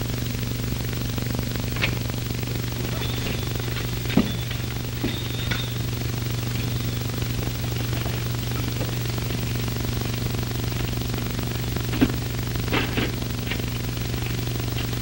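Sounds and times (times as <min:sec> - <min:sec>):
film soundtrack hum and hiss: 0:00.0 - 0:15.0.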